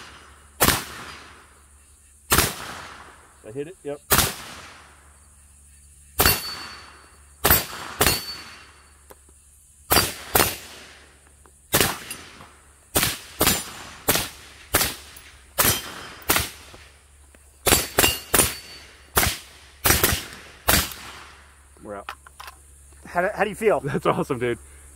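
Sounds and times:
rifle gunshots: 0.0s - 1.5s, 2.3s - 3.3s, 4.1s - 5.0s, 6.2s - 8.7s, 9.9s - 11.1s, 11.7s - 17.0s, 17.6s - 21.5s
faint ring after shots: 6.2s - 9.1s.

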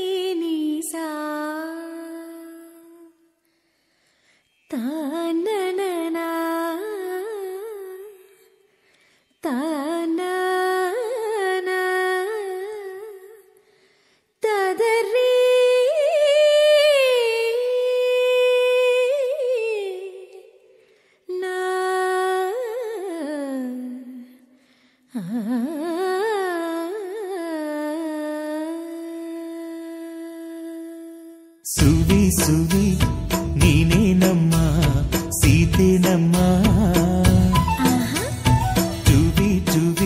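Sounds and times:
person breathing: 3.4s - 4.5s, 8.7s - 9.4s, 13.6s - 14.4s, 20.8s - 21.3s, 24.5s - 25.1s
person humming a melody: 36.3s - 40.0s.

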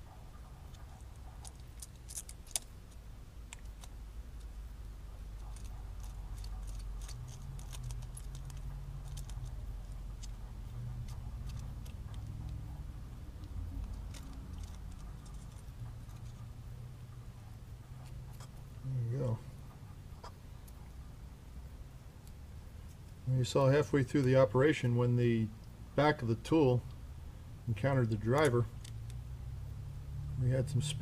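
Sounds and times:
low steady hum: 0.0s - 31.0s
small metal scrapes: 0.7s - 4.5s, 5.2s - 12.4s.

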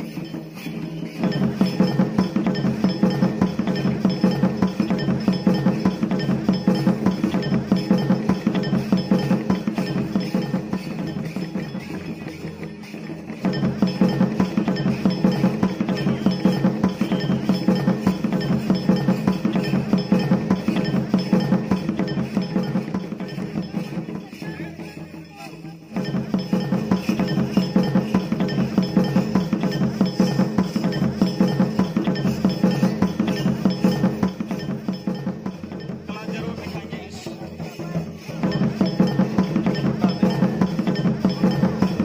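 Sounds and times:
barrel drums beating: 0.0s - 42.0s.

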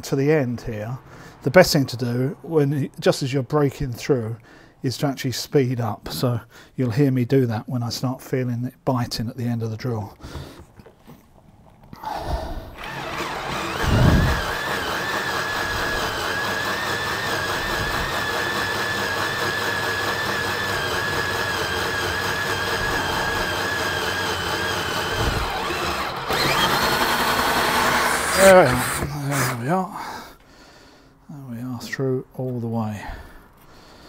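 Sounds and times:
cordless drill whining through steel: 12.1s - 29.8s.

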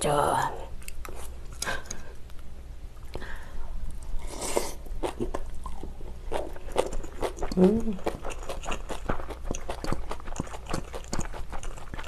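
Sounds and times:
chewing with light crunching: 0.8s - 3.2s, 5.0s - 12.0s.

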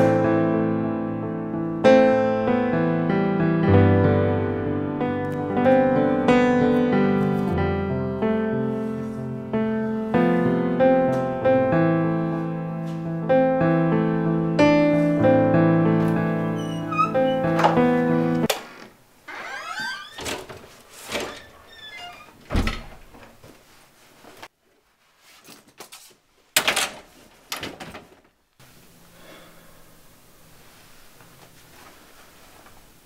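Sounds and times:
door hinges squeaking: 16.2s - 18.5s, 19.3s - 23.1s
door shutting with thud: 16.4s - 17.9s, 19.4s - 23.3s.

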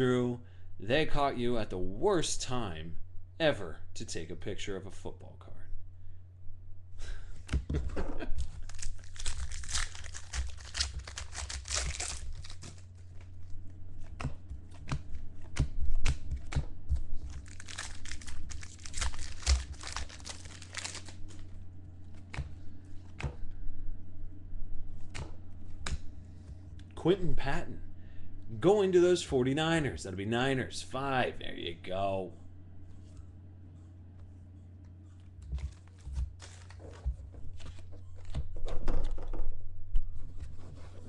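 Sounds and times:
steady low hum: 0.0s - 41.0s
foil wrapper crinkling: 8.3s - 13.6s, 17.0s - 21.5s, 35.4s - 38.4s.

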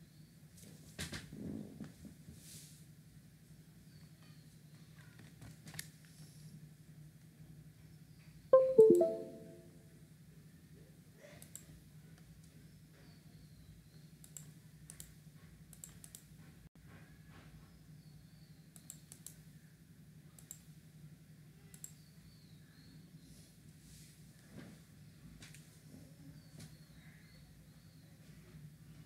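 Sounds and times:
faint short clicks: 11.4s - 11.7s, 18.8s - 19.4s, 21.7s - 22.0s.

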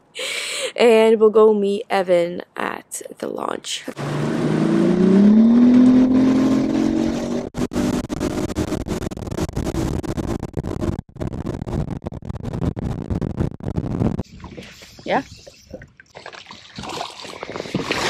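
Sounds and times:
outboard motor accelerating: 4.0s - 9.0s.

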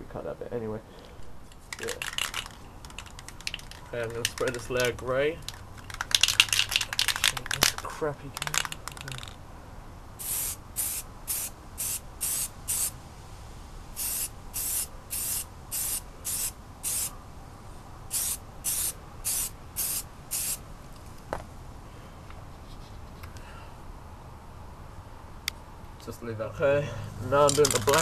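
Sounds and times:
spray paint can hissing: 1.8s - 4.6s, 5.8s - 7.2s, 10.2s - 13.0s, 14.0s - 17.1s, 18.1s - 20.6s.

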